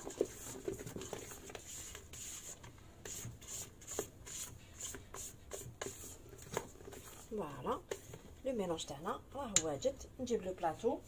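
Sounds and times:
spatula scraping batter in metal bowl: 0.0s - 8.1s.

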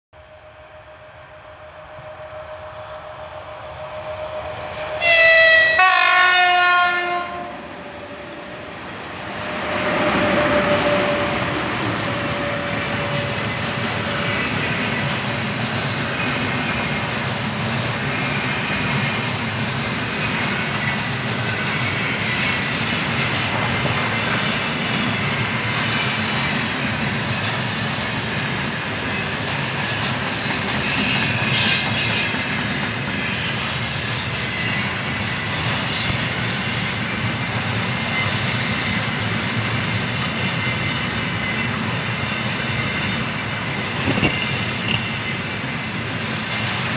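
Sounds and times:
freight train wheels rumbling: 0.2s - 46.9s
high wheel squeal: 30.6s - 37.0s, 40.4s - 46.9s.

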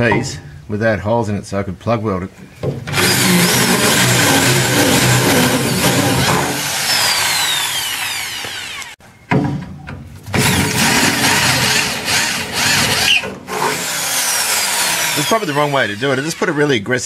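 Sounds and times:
cordless drill whining: 2.9s - 9.0s, 10.4s - 16.6s.

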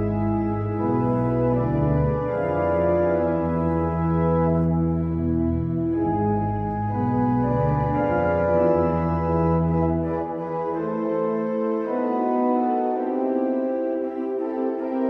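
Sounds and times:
deep organ bass notes: 0.0s - 15.0s
organ playing held chords: 0.0s - 15.0s.

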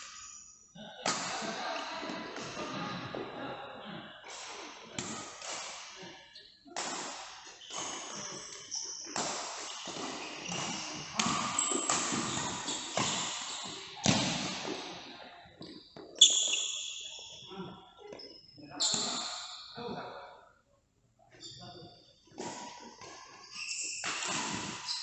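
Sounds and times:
racket hitting shuttlecock: 1.0s - 2.7s, 4.3s - 6.1s, 6.8s - 15.0s, 24.0s - 25.0s.

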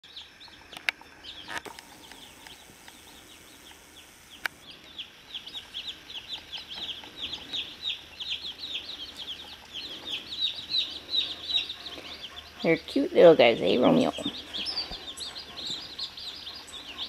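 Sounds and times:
chicks peeping: 0.0s - 17.0s
sharp clicks: 0.7s - 4.6s.

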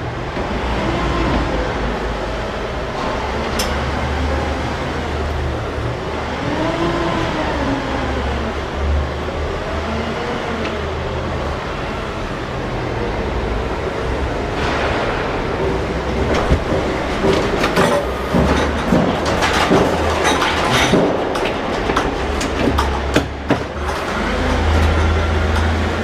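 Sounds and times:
forklift engine hum: 0.0s - 26.0s
paper roll knocking and creaking: 16.1s - 25.8s.

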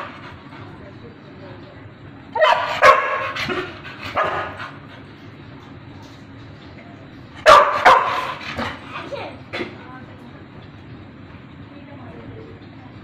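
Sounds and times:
dog barking: 2.4s - 4.6s, 7.4s - 8.7s.

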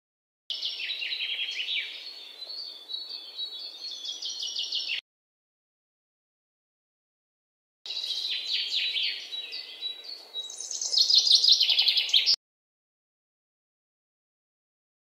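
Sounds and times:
small birds chirping: 0.5s - 5.0s, 7.9s - 12.4s.

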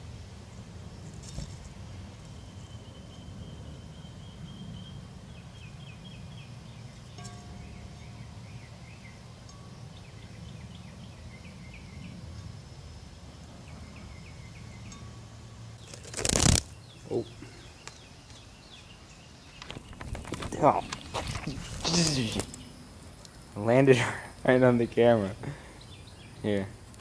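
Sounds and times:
low outdoor hum: 0.0s - 27.0s
small birds chirping: 0.5s - 27.0s
loud rustle: 15.8s - 16.7s, 19.6s - 22.6s.

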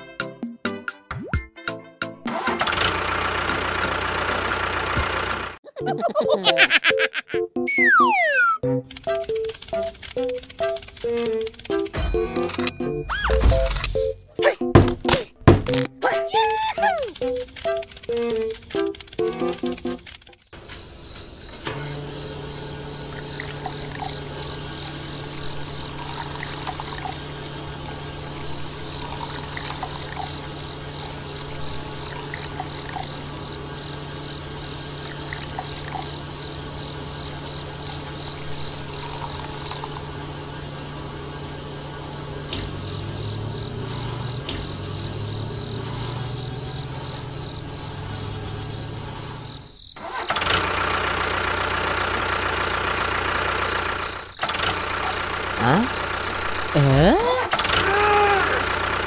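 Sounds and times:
small motor humming: 16.8s - 49.8s, 50.6s - 59.0s
water pouring: 23.1s - 33.3s, 34.9s - 36.2s, 37.7s - 40.0s.

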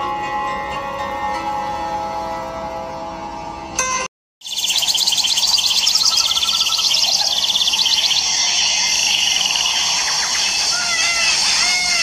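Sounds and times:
birdsong: 4.4s - 12.0s
fast high pulsing trill: 4.4s - 12.0s
insect chirring: 4.4s - 12.0s.

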